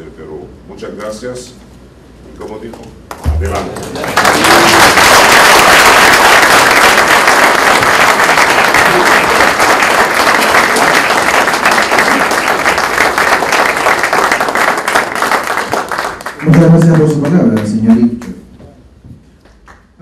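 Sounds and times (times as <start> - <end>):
audience applauding: 3.1 - 18.3.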